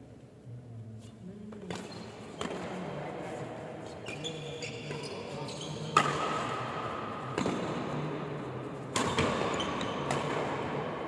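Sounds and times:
rackets hitting shuttlecock: 1.7s - 2.8s, 5.9s - 8.0s, 8.9s - 11.0s.

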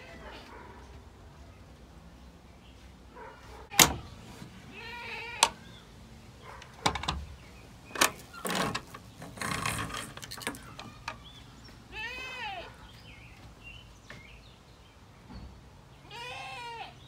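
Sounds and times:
goats bleating: 4.7s - 5.6s, 11.9s - 12.7s, 16.0s - 17.0s.

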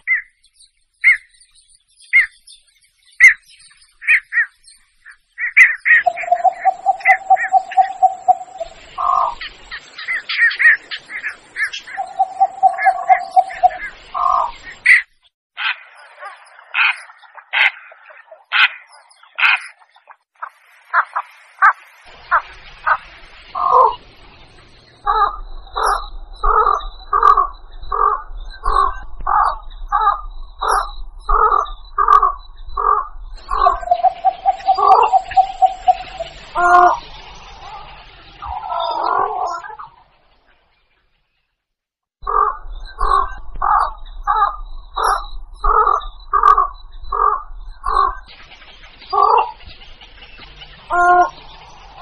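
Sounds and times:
harsh short heron calls: 5.4s - 9.4s, 10.1s - 14.5s, 25.0s - 37.0s, 42.2s - 48.3s, 50.9s - 51.4s.

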